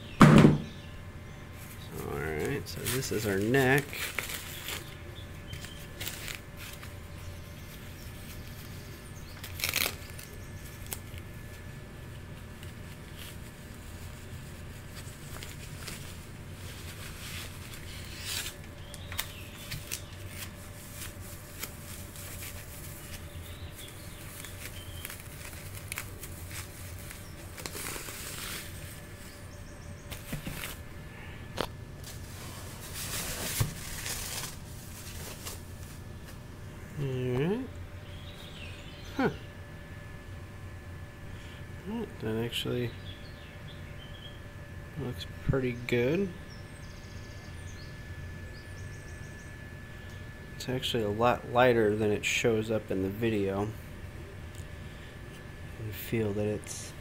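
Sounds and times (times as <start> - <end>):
steady low hum: 0.0 - 57.0
plastic sleeve crinkling: 1.6 - 36.5.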